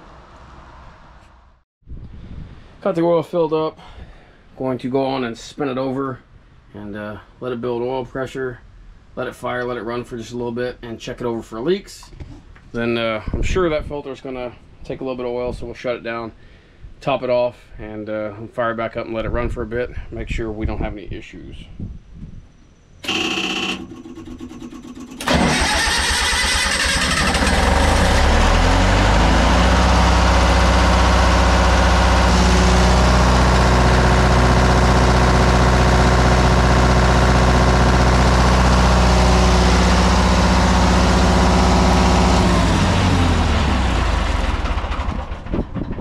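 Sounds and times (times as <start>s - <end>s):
diesel engine running: 23.0s - 45.8s
diesel engine starter cranking: 23.0s - 46.0s.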